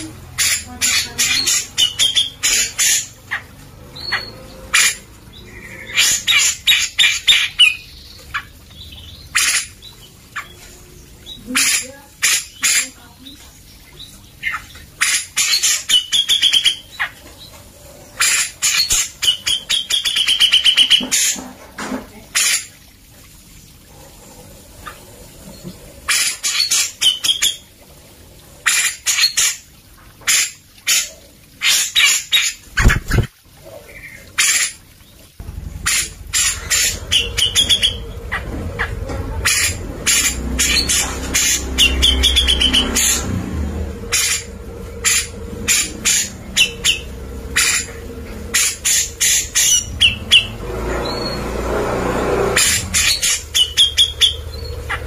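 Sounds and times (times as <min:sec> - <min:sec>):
bulbul harsh chattering calls: 0:00.3 - 0:03.4, 0:04.0 - 0:13.4, 0:18.2 - 0:21.5, 0:35.4 - 0:43.3, 0:44.0 - 0:51.4, 0:52.6 - 0:55.0
low rumble: 0:35.4 - 0:55.0.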